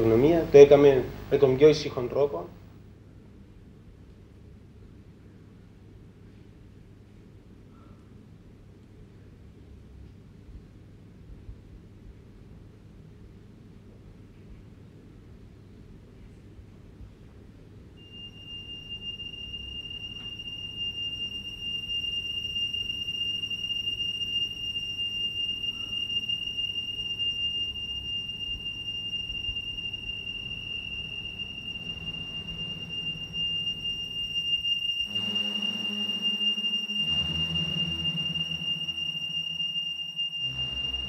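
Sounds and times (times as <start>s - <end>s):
high whistling tone: 0.0s - 2.6s, 18.0s - 41.0s
low pulsing tone: 27.2s - 41.0s
low rumbling drone: 28.5s - 41.0s.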